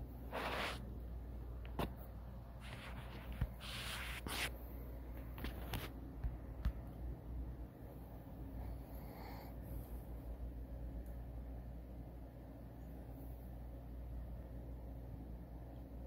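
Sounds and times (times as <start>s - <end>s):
steady low hum: 0.0s - 16.0s
towel rustling and scraping: 0.3s - 0.8s.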